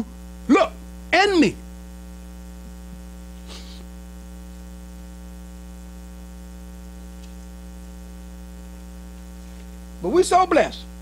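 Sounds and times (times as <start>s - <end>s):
electrical mains hum: 0.0s - 11.0s
hiss: 3.4s - 3.9s.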